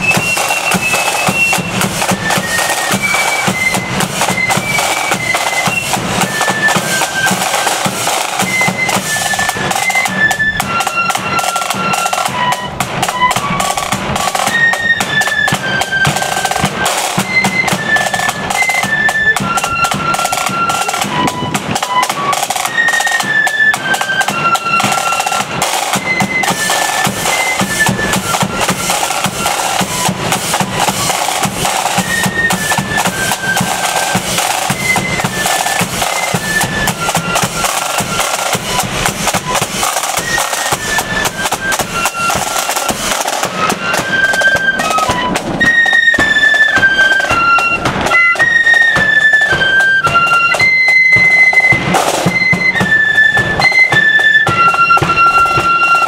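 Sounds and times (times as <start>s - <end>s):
flutes playing melody: 0.0s - 56.0s
side drum beating and rolls: 0.0s - 56.0s.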